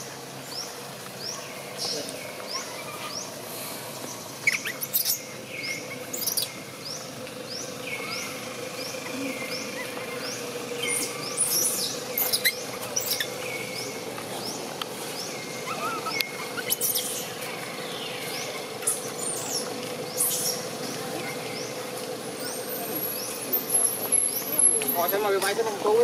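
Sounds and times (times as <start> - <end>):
high rising chirp: 4.0 - 20.8
squeaky animal calls: 4.4 - 5.3, 10.8 - 13.4, 15.6 - 17.3.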